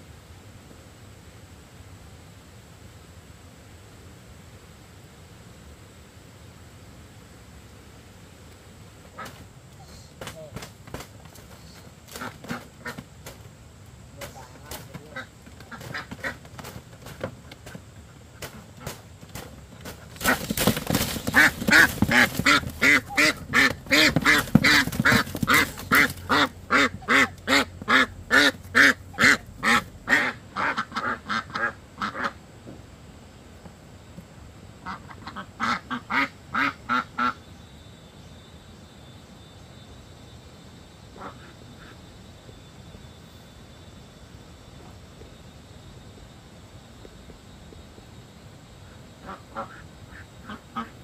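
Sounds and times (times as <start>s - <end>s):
ducks quacking: 11.6s - 13.1s, 14.2s - 16.7s, 20.0s - 32.4s, 34.8s - 37.4s, 41.2s - 42.0s, 49.2s - 51.0s.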